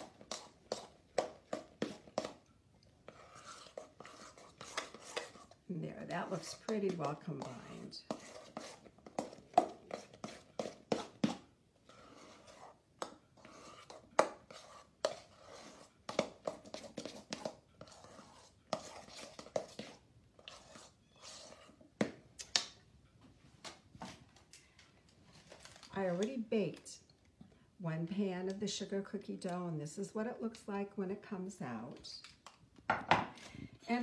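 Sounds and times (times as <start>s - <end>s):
spoon scraping metal bowl: 0.0s - 2.4s, 3.0s - 21.8s.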